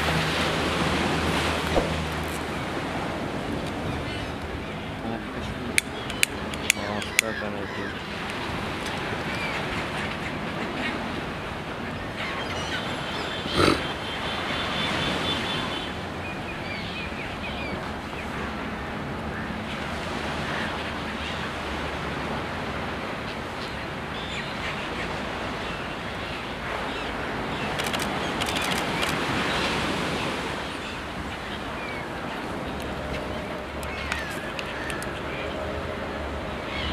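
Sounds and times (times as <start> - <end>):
surf washing on a beach: 0.0 - 36.9
terns and gulls calling: 1.4 - 18.6, 19.2 - 36.9.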